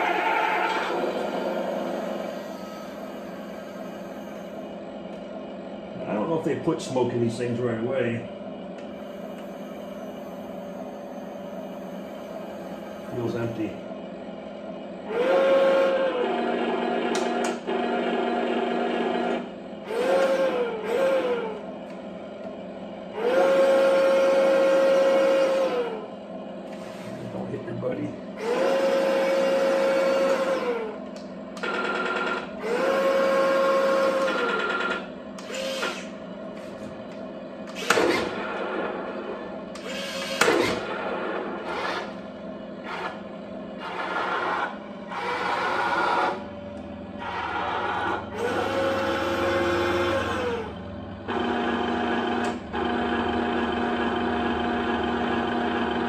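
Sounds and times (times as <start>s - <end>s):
small electric motors whining: 0.0s - 4.7s, 15.0s - 16.3s, 19.8s - 21.6s, 23.2s - 26.0s, 28.4s - 36.1s, 39.7s - 41.0s, 47.2s - 51.8s
second motor whine: 0.0s - 5.7s, 8.8s - 13.9s, 14.9s - 27.5s, 28.4s - 56.0s.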